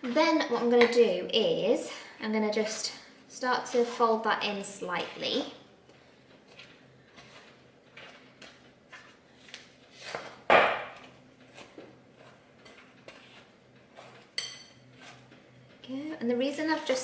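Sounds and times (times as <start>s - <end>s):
wooden spoon scraping glass bowl: 6.5s - 10.4s, 11.5s - 15.3s.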